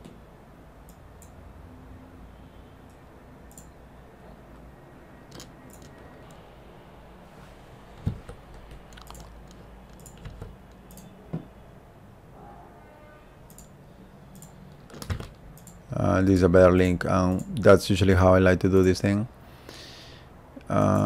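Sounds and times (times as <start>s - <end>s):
keyboard keystrokes: 8.0s - 11.1s, 14.3s - 15.8s.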